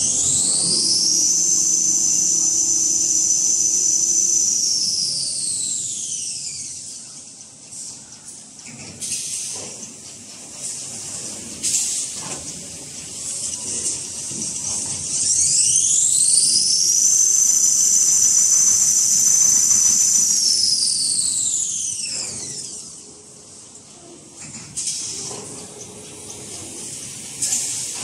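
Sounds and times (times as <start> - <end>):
production line hiss: 0.0 - 8.4, 9.0 - 28.0
high motor whine: 14.3 - 23.1.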